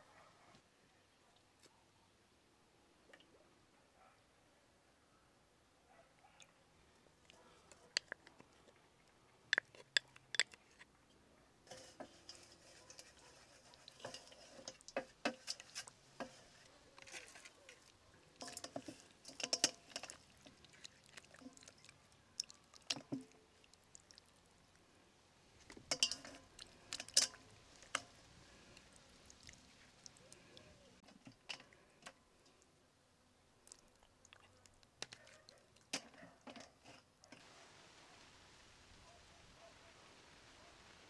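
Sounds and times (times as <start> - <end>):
wooden spoon scraping bowl: 11.7 - 21.7
hands squelching and smacking meat: 17.0 - 24.4.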